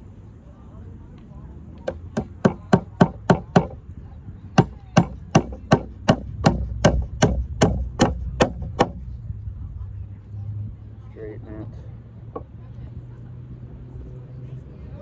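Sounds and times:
hammer striking nails into wood: 0:01.8 - 0:03.8, 0:04.6 - 0:09.0.

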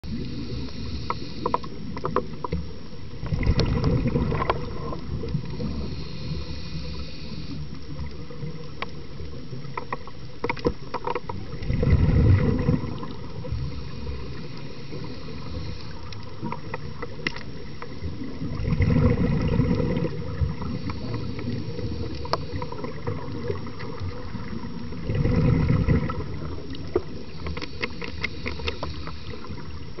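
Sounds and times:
dull underwater rumble: 0:00.0 - 0:30.0
diver exhaling bubbles: 0:03.2 - 0:07.3, 0:11.4 - 0:15.8, 0:18.0 - 0:29.6
sharp clicks and crackles: 0:07.7 - 0:11.8, 0:16.0 - 0:18.0, 0:26.6 - 0:30.0.

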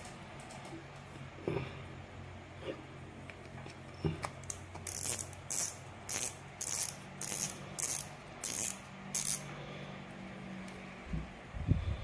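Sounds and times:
fishing reel drag clicking: 0:04.9 - 0:09.4.

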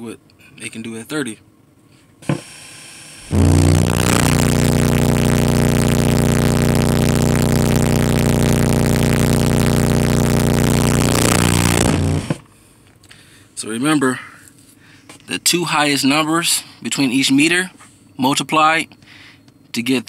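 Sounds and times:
harsh buzz: 0:03.2 - 0:12.4
subwoofer low test tone: 0:03.2 - 0:12.4.

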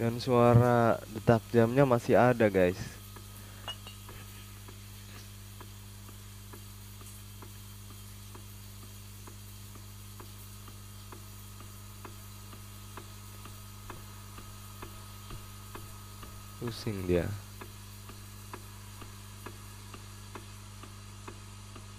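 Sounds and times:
steady low hum: 0:00.0 - 0:21.9.

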